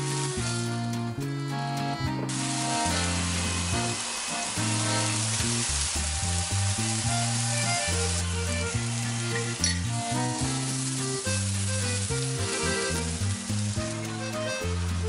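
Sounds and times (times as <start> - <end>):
background music: 0.0 - 15.0
mushrooms sizzling in a pan: 2.3 - 15.0.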